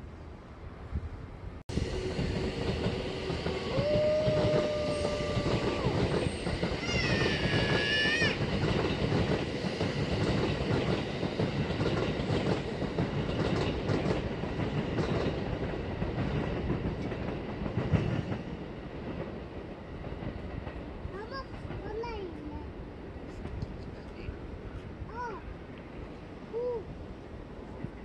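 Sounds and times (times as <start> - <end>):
train squeal: 1.7 - 11.6
train wheels clattering on rails: 1.7 - 22.3.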